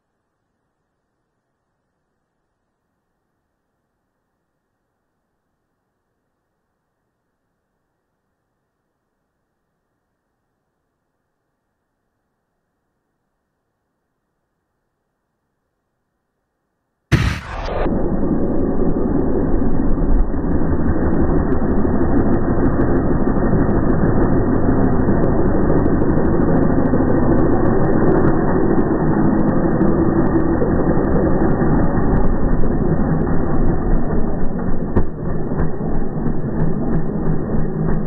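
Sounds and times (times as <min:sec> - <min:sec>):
muffled motorcycle engine running: 0:17.6 - 0:38.0.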